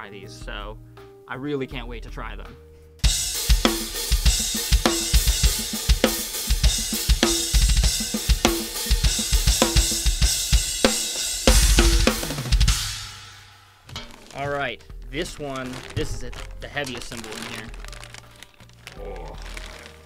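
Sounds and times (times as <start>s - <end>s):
bass drum hits: 11.4s - 13.2s.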